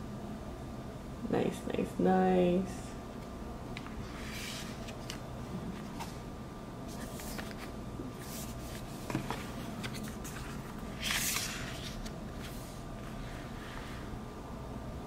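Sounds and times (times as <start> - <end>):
steady background noise: 0.0 - 15.0
paper card sliding: 4.0 - 5.2, 6.9 - 14.0.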